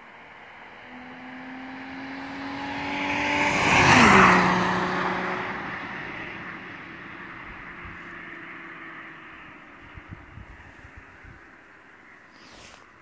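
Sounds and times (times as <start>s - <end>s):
car driving past: 0.2s - 10.1s.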